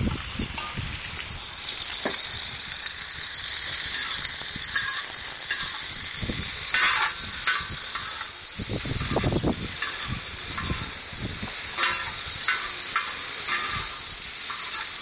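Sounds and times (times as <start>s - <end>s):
vegetables sizzling in oil: 0.0s - 15.0s
metal spatula scraping pan: 3.9s - 8.4s, 9.0s - 11.0s, 11.7s - 15.0s.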